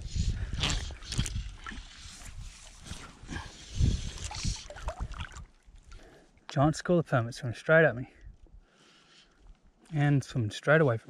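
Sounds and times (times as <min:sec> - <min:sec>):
sea water sloshing around legs: 0:04.1 - 0:06.0.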